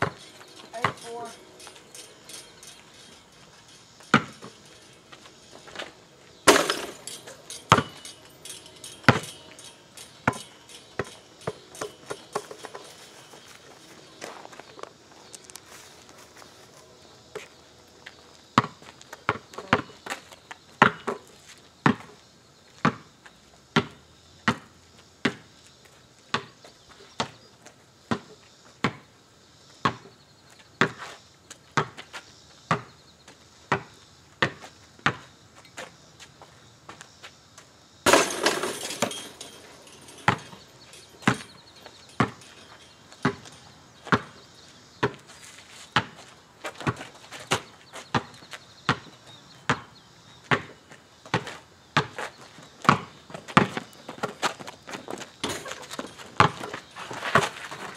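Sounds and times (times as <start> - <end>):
basketball bouncing on asphalt: 0.0 - 1.3, 4.0 - 5.9, 7.7 - 8.1, 9.1 - 9.3, 10.2 - 12.9, 18.6 - 20.2, 20.8 - 23.1, 23.8 - 25.5, 26.3 - 26.6, 28.1 - 29.1, 29.8 - 30.1, 30.8 - 31.1, 31.7 - 33.0, 33.7 - 35.3, 38.1 - 40.6, 41.2 - 41.5, 42.2 - 44.4, 45.0 - 45.3, 46.0 - 57.9.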